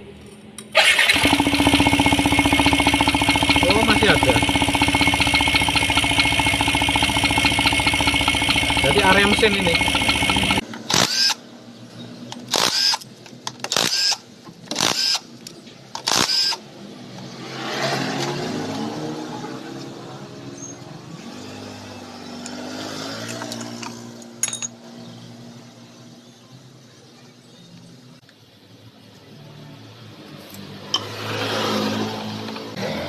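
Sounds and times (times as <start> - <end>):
engine hum: 0.0 - 13.9
cordless power driver whirring: 4.6 - 11.4.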